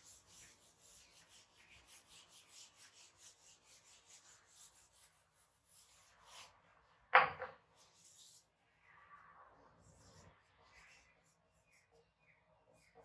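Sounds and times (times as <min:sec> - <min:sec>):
eraser rubbing on whiteboard: 0:00.0 - 0:06.7, 0:07.8 - 0:08.5.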